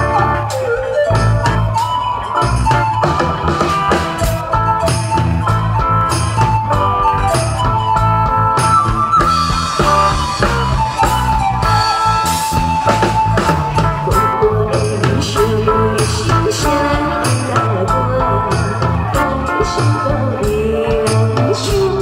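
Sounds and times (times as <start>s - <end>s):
drum-kit beat: 0.0s - 22.0s
guitar: 0.0s - 22.0s
woman singing into a microphone: 14.0s - 22.0s.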